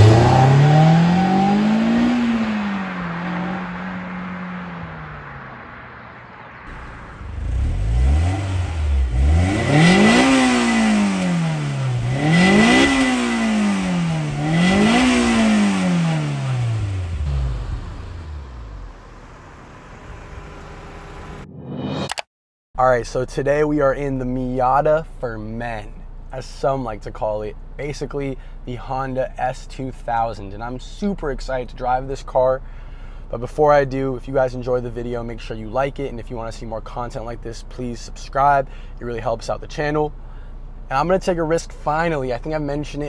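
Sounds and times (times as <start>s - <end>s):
car accelerating past: 0.0s - 21.5s
car engine revving: 0.0s - 21.6s.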